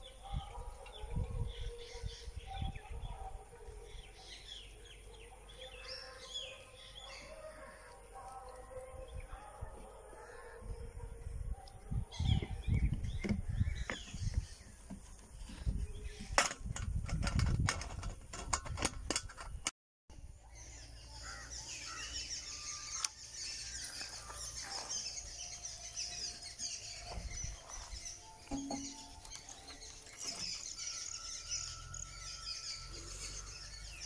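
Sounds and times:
birds chirping: 0.0s - 16.8s, 20.4s - 34.0s
knocks and clicks handling tiller: 16.2s - 19.7s, 28.5s - 30.6s.

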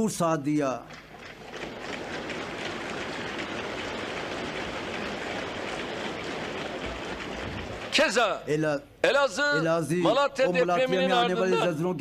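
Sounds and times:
large audience applauding: 0.9s - 8.5s.

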